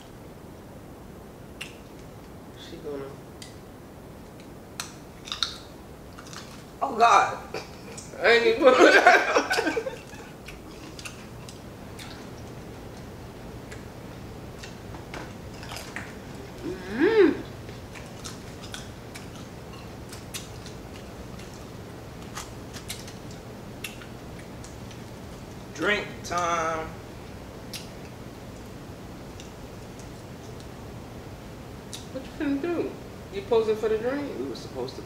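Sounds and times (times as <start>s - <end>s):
chewing and finger-licking: 1.6s - 2.4s, 4.2s - 6.6s, 10.0s - 13.9s, 14.5s - 14.8s, 17.7s - 25.1s, 27.7s - 28.7s, 29.3s - 30.7s
person humming: 16.6s - 17.6s.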